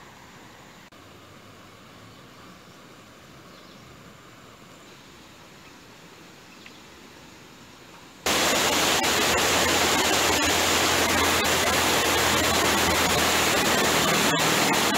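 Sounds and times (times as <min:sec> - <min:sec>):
water rushing over a weir: 0:08.2 - 0:14.9.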